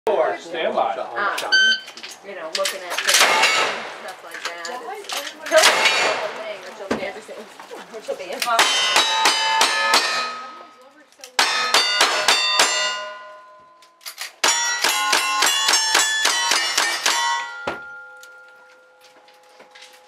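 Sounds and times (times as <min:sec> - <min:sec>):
steel targets clanging: 0:01.4 - 0:06.7, 0:08.5 - 0:19.0
gunshots: 0:03.0 - 0:04.1, 0:05.5 - 0:06.8.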